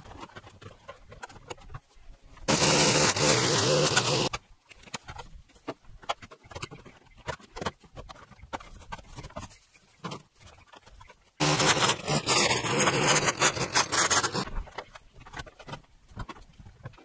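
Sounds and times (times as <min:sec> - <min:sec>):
string trimmer running: 0:02.5 - 0:04.3, 0:11.4 - 0:14.4.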